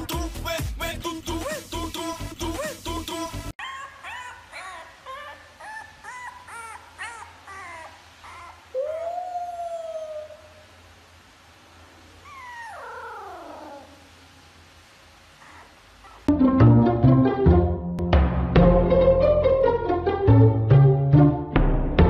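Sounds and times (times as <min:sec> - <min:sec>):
puppy whining and yipping: 0:03.6 - 0:10.6, 0:12.2 - 0:14.0, 0:15.4 - 0:16.3
puppy howling: 0:03.6 - 0:10.7, 0:12.2 - 0:14.1.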